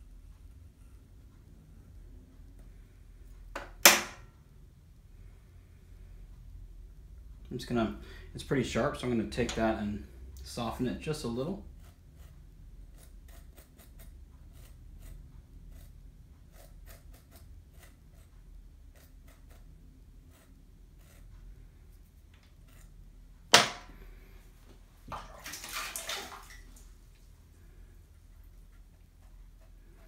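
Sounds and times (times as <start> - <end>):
sharp knock: 3.6 - 4.2, 23.5 - 23.9
hand tool scraping clay: 11.8 - 21.4.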